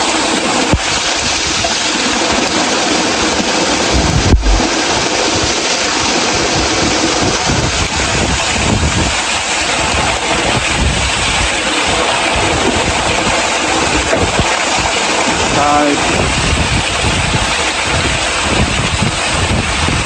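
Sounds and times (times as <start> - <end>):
waterfall rushing: 0.0 - 20.0
sharp thump: 4.0 - 4.7.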